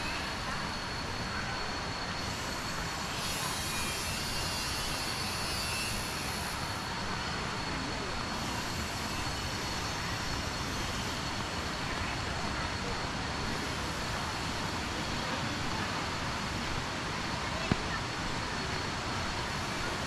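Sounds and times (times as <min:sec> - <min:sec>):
shrill insect buzz: 0:02.2 - 0:06.9.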